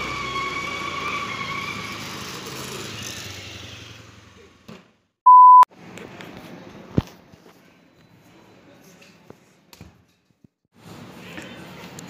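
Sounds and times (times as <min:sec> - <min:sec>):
loud pure beep: 0:05.3 - 0:05.7.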